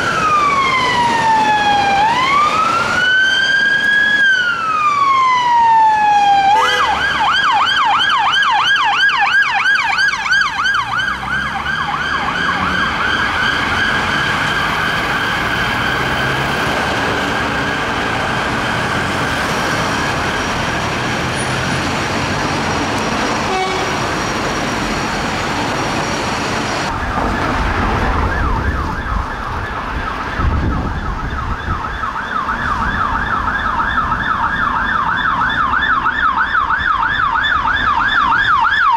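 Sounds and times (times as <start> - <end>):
second police yelp siren: 0.0 - 16.4, 28.2 - 38.9
police siren wail and yelp: 0.0 - 38.9
traffic noise: 0.0 - 38.9.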